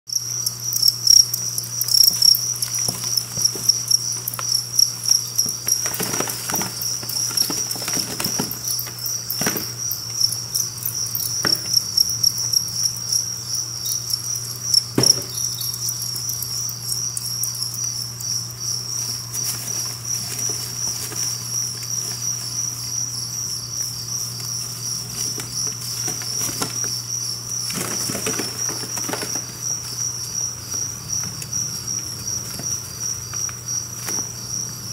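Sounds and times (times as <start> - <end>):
crickets chirping: 0.1 - 34.9
rustles and knocks: 2.0 - 11.9, 14.9 - 15.7, 27.6 - 29.9.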